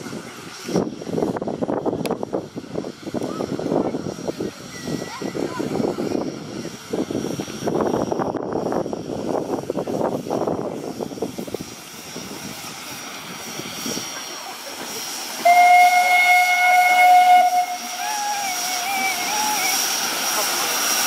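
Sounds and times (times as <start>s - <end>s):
steam hissing: 0.0s - 21.0s
steam whistle: 15.4s - 19.8s.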